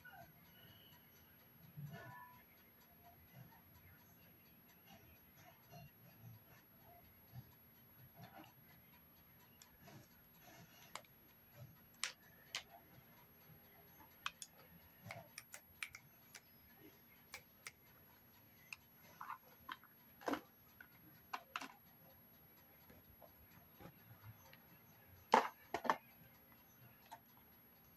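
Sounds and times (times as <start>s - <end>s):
faint clicks of containers handled: 18.8s - 21.8s, 25.2s - 26.1s.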